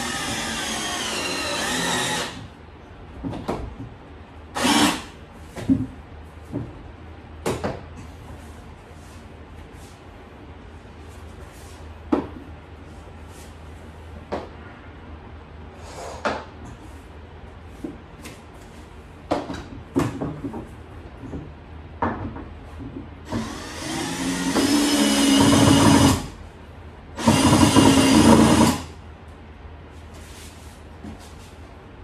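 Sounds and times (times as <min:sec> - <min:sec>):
cordless drill motor whirring: 0:00.0 - 0:02.4, 0:04.6 - 0:05.0
panels knocking and clicking: 0:19.3 - 0:23.5.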